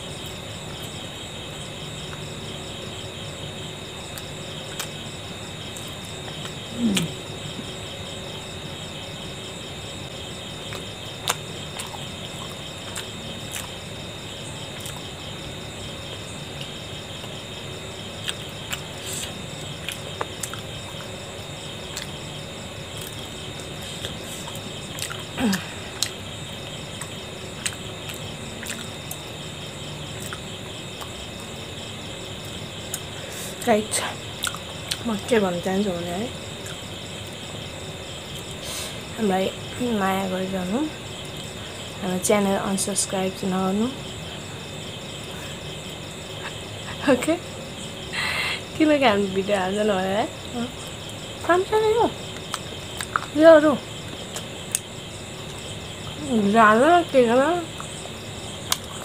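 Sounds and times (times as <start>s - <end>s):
crickets chirping: 0.0s - 59.0s
chewing clicks and smacks: 10.7s - 13.7s, 19.8s - 20.7s, 24.9s - 25.2s, 27.0s - 29.2s, 30.2s - 30.4s, 34.4s - 35.0s, 52.3s - 53.4s, 58.7s - 59.0s.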